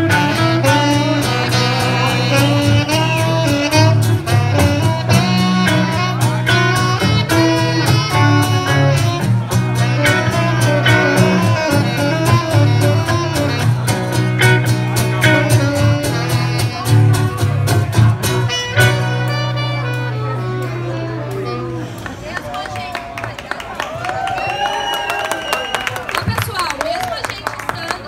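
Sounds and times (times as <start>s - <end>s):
strummed acoustic guitar: 0.0s - 22.0s
bass guitar: 0.0s - 22.4s
saxophone melody: 0.0s - 22.7s.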